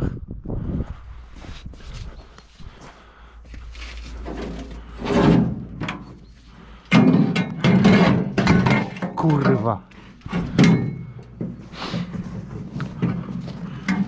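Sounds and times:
metal wheelbarrow clattering: 0:04.0 - 0:14.0
banging and metallic rattling: 0:04.2 - 0:14.0.

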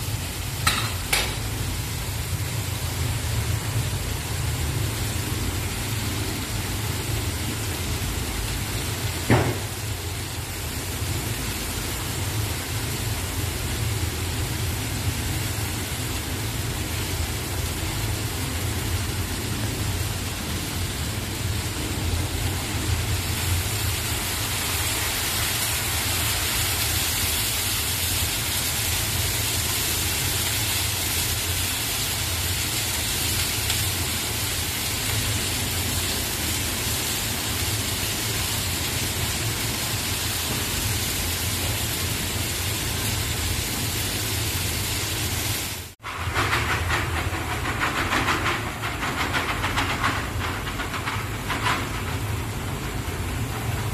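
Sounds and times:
food sizzling in oil: 0:00.0 - 0:46.3
sharp knock: 0:09.3 - 0:09.7.

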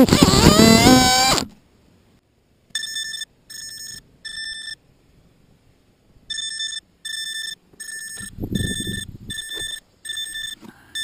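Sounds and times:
high-pitched electronic beeps: 0:06.3 - 0:11.0.

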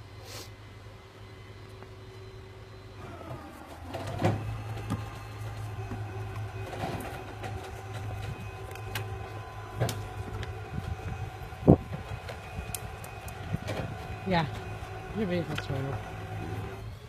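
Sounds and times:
vehicle engine running: 0:00.7 - 0:17.0.

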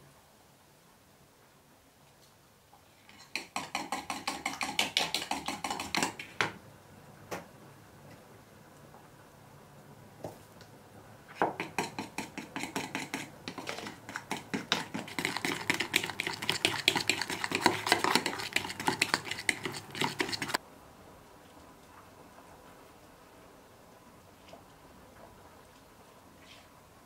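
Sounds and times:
spoon beating dough in plastic bowl: 0:03.1 - 0:06.5, 0:11.4 - 0:20.6.

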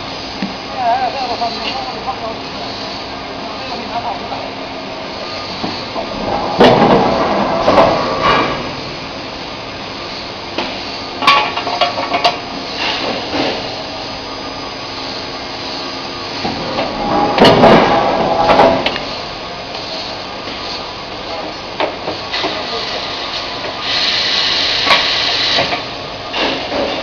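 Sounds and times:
steady machine hum: 0:00.0 - 0:27.0
metal bangs and clanks: 0:05.9 - 0:09.2, 0:16.5 - 0:19.0.

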